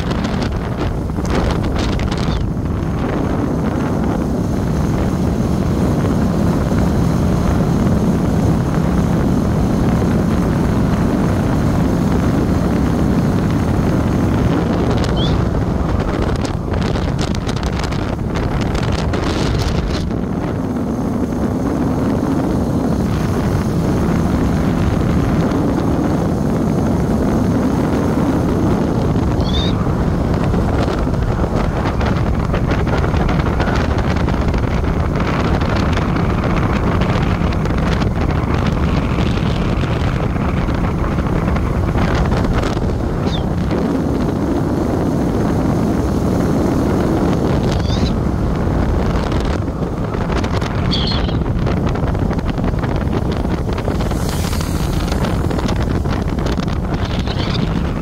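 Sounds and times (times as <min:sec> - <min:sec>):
motorbike engine and tyres droning: 0:00.0 - 0:58.0
wind buffeting microphone: 0:00.0 - 0:58.0.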